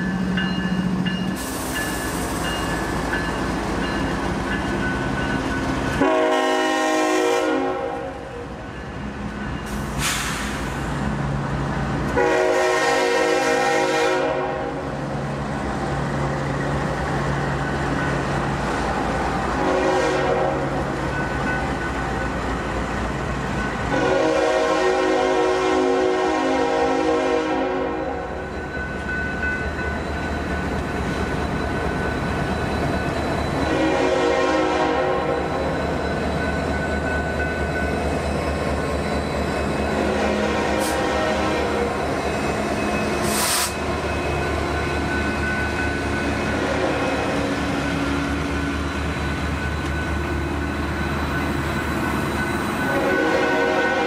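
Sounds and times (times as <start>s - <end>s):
freight train engines rumbling: 0.0s - 54.0s
locomotive horn blasts: 5.9s - 8.4s, 12.1s - 14.9s, 19.6s - 20.8s, 23.9s - 28.3s, 33.7s - 35.5s, 40.0s - 42.0s, 46.5s - 47.5s, 52.9s - 54.0s.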